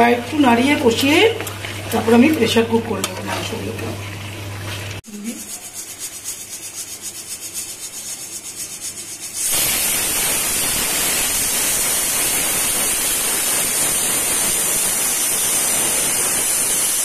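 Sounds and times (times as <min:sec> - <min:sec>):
pressure cooker pulsing hiss: 0:05.1 - 0:17.0
pressure cooker whistling steam: 0:09.4 - 0:17.0.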